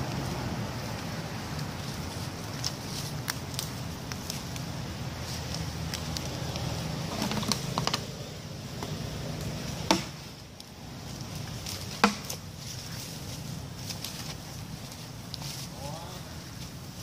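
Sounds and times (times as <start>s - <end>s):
footsteps on dry leaves: 0.0s - 17.0s
twigs snapping: 0.9s - 8.1s, 8.8s - 13.2s.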